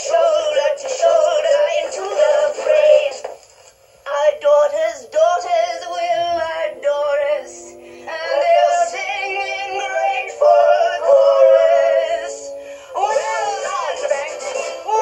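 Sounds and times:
women singing a show tune: 0:00.0 - 0:03.2, 0:04.1 - 0:15.0
orchestral accompaniment: 0:06.0 - 0:13.8.

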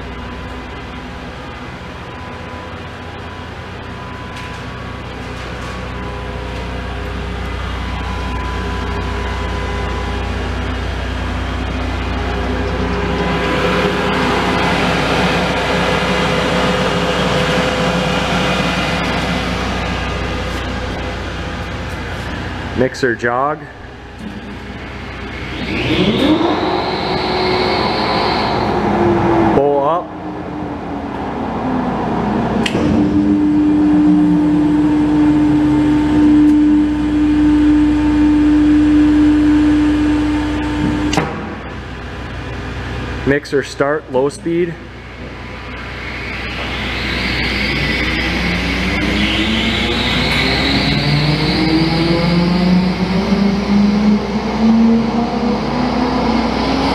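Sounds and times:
machinery drone: 0:00.0 - 0:56.9
steady tones: 0:00.0 - 0:56.9
mixer motor humming: 0:06.5 - 0:22.8, 0:23.8 - 0:43.2
low electrical hum: 0:26.8 - 0:50.1.

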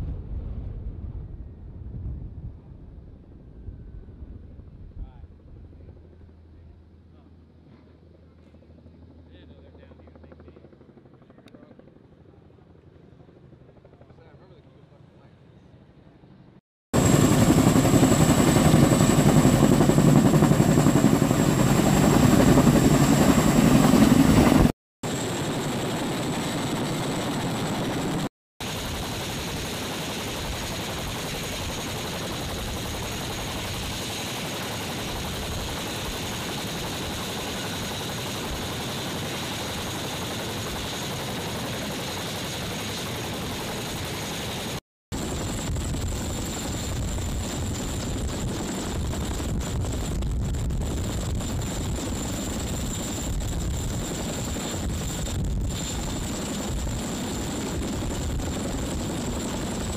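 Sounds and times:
helicopter turbine whine: 0:03.0 - 0:14.6, 0:17.0 - 0:59.9
helicopter rotor noise: 0:08.6 - 0:12.4, 0:17.0 - 0:59.9.

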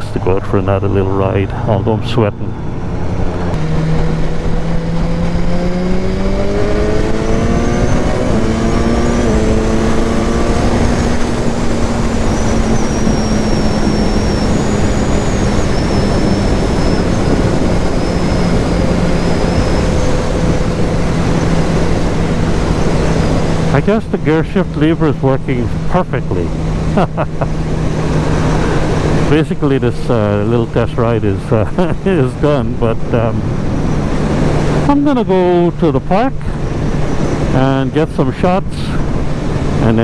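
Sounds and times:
wind noise on microphone: 0:02.4 - 0:24.0, 0:36.4 - 0:37.8
motorcycle engine running: 0:02.6 - 0:30.7.

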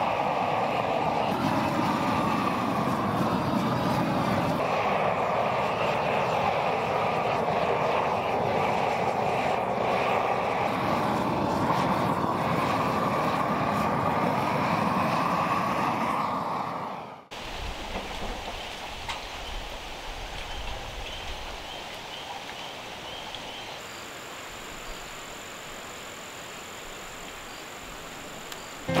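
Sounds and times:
propane torch burning: 0:00.0 - 0:21.6.

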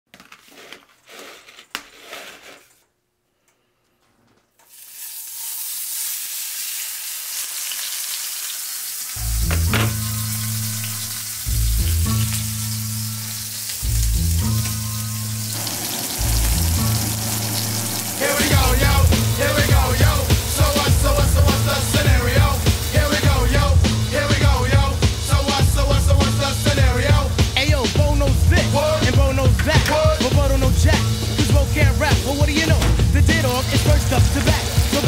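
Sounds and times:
steak sizzling in a pan: 0:04.7 - 0:24.4, 0:33.3 - 0:35.0
hip-hop beat with heavy bass: 0:18.1 - 0:35.0.

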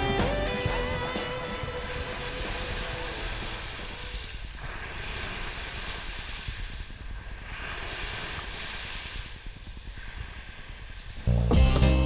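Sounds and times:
surf breaking on beach: 0:00.7 - 0:11.1
wind rumbling on microphone: 0:00.8 - 0:11.5.

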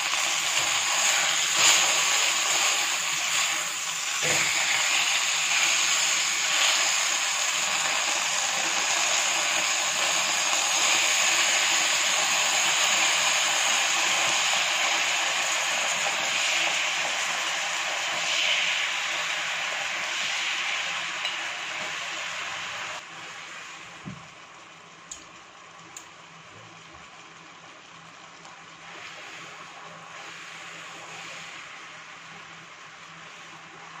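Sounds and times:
sauce sizzling in frying pan: 0:00.0 - 0:23.9.

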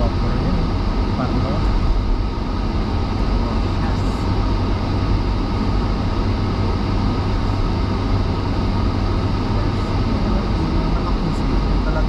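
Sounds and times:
car engine drone: 0:00.0 - 0:12.0.

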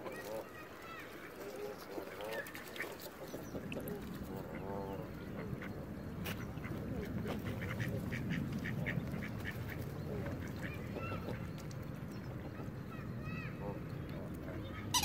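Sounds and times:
ducks quacking: 0:00.0 - 0:11.7.

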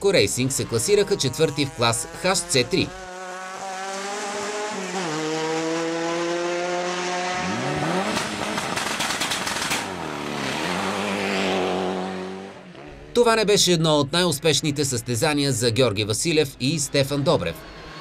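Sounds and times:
rally car engine revving: 0:00.0 - 0:13.5, 0:16.6 - 0:18.0
sharp engine cracks: 0:08.0 - 0:09.9.

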